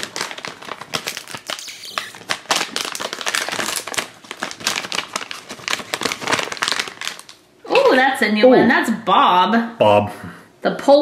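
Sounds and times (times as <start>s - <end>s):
foil bag crinkling: 0.0s - 8.0s.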